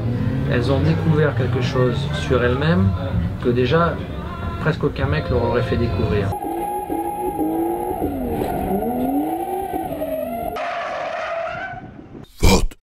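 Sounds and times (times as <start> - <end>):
tyres squealing: 6.0 - 11.7
car engine revving: 6.3 - 10.7.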